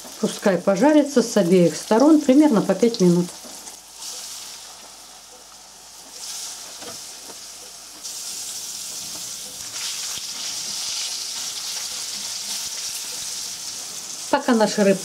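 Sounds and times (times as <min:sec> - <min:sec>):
fish sizzling in hot oil: 0:00.0 - 0:15.0.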